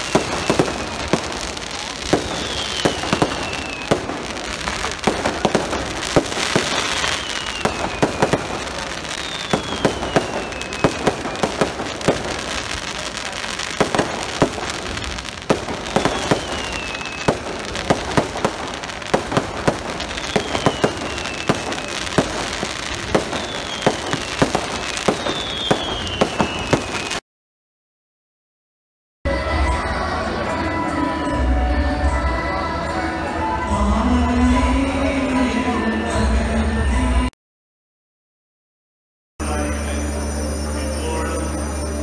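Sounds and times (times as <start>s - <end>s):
fireworks crackling and banging: 0.0s - 27.2s
fireworks whistling: 0.0s - 27.2s.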